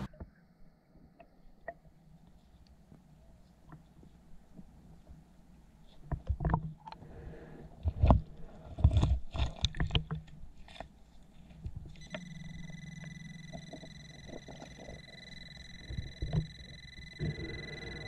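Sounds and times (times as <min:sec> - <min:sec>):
metal detector high tone: 0:12.0 - 0:18.0.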